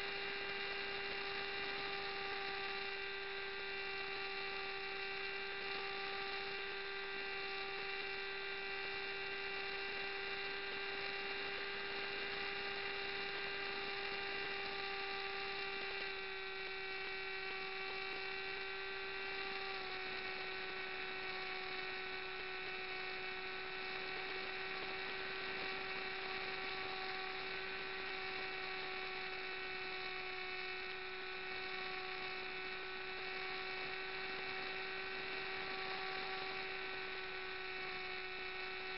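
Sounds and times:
model aircraft motor whining: 0:12.4 - 0:38.8.

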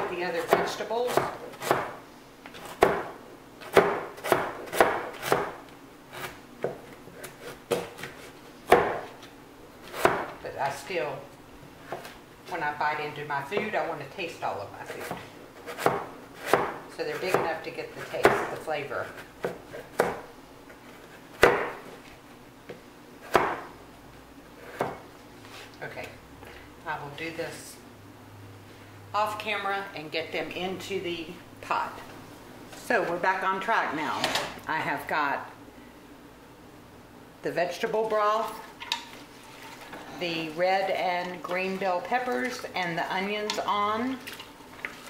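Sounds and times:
knife chopping on cutting board: 0:00.4 - 0:02.0, 0:02.6 - 0:09.1, 0:09.9 - 0:10.3, 0:15.0 - 0:18.5, 0:19.4 - 0:20.2, 0:21.3 - 0:21.8, 0:23.2 - 0:23.7.

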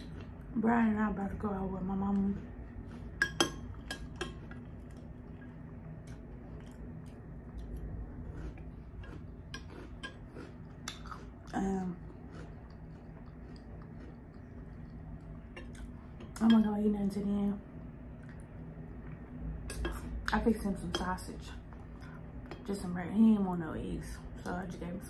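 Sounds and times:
chewing cereal in milk: 0:01.8 - 0:16.3.

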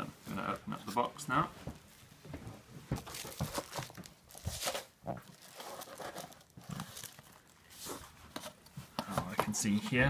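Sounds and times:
plastic bag crinkling and tearing: 0:03.1 - 0:07.7.

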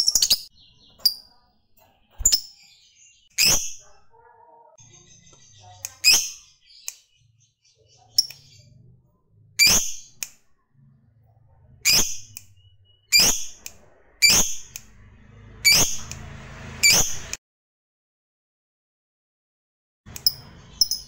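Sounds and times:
lovebird calls: 0:09.6 - 0:10.3, 0:11.8 - 0:14.8.

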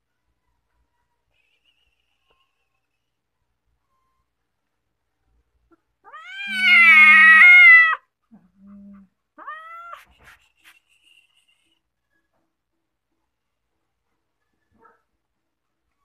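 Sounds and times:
cat meowing: 0:06.0 - 0:08.0, 0:09.0 - 0:10.1.

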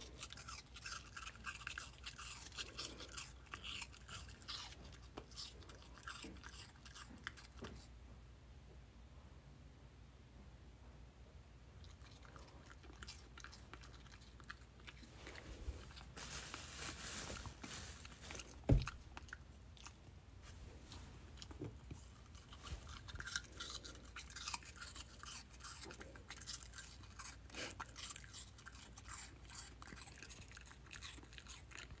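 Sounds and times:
puppy crunching apple: 0:00.0 - 0:07.9, 0:11.8 - 0:16.2, 0:17.9 - 0:32.0
thump: 0:18.7 - 0:19.0.

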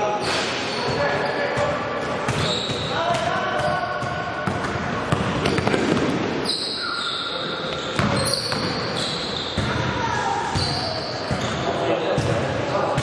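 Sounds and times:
voices in a hall: 0:00.0 - 0:13.0
sneakers squeaking on floor: 0:00.2 - 0:13.0
basketball bouncing: 0:01.6 - 0:06.2.

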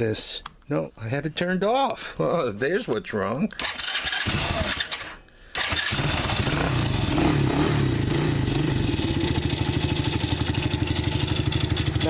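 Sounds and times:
atv engine running: 0:03.6 - 0:04.9, 0:05.6 - 0:12.0
electric starter cranking: 0:03.6 - 0:07.0.

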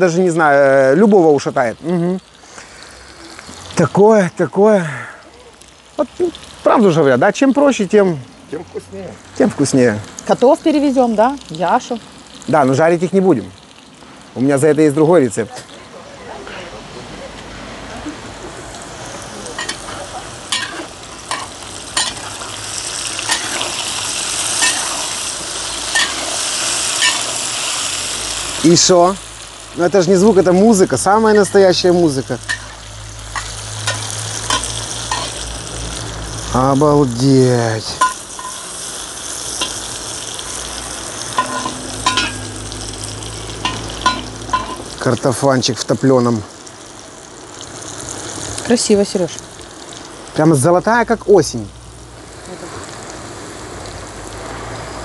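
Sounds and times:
potatoes sizzling in hot oil: 0:00.0 - 0:16.4, 0:17.3 - 0:55.0
metal spatula scraping pan: 0:19.6 - 0:22.4, 0:23.3 - 0:23.8, 0:24.5 - 0:25.2, 0:25.9 - 0:27.4, 0:32.5 - 0:32.8, 0:33.4 - 0:35.4, 0:41.3 - 0:42.6
metal skimmer scraping pot: 0:41.3 - 0:42.6.

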